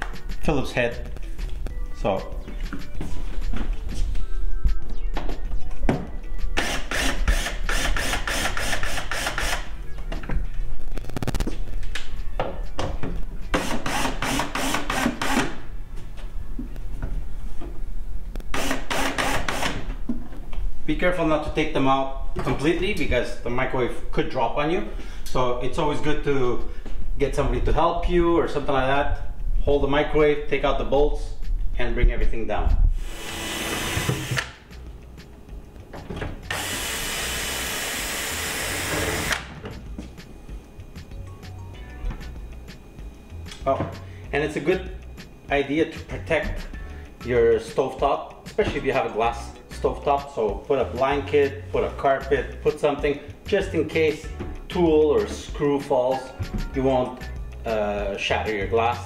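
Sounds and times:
cordless drill running: 0:06.6 - 0:09.7, 0:13.6 - 0:15.5, 0:18.5 - 0:19.9, 0:33.0 - 0:34.5, 0:36.5 - 0:39.5.

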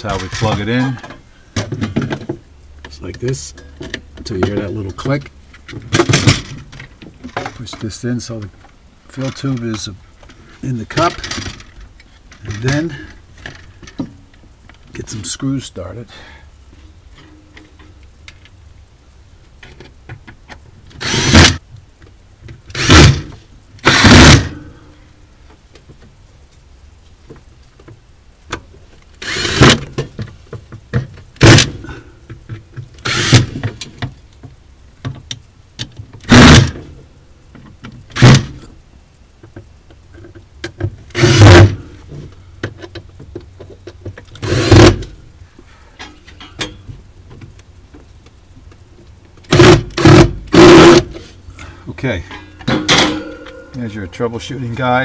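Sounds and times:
cordless drill driving screws: 0:21.0 - 0:21.6, 0:22.7 - 0:24.5, 0:29.2 - 0:29.8, 0:33.0 - 0:33.6, 0:36.3 - 0:36.7, 0:41.1 - 0:41.7, 0:44.4 - 0:45.0, 0:49.5 - 0:51.0.

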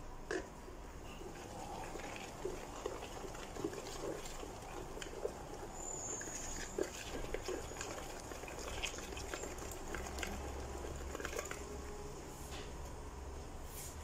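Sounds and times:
whisk squelching in batter: 0:01.2 - 0:11.9.

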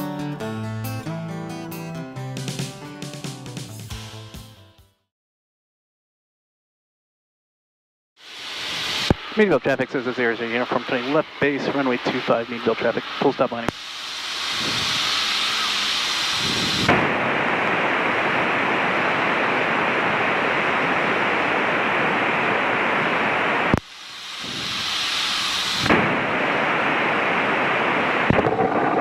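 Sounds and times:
radio static hiss: 0:08.2 - 0:29.0.

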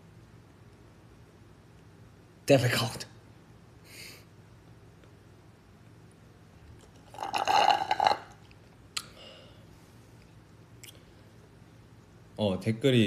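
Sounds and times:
slurping through a straw: 0:07.0 - 0:08.3.

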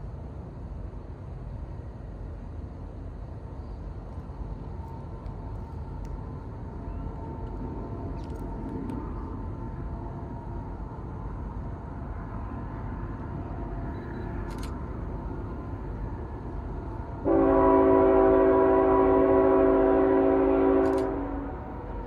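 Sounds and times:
train low rumble: 0:00.0 - 0:22.0
locomotive air horn chord: 0:17.2 - 0:21.8.

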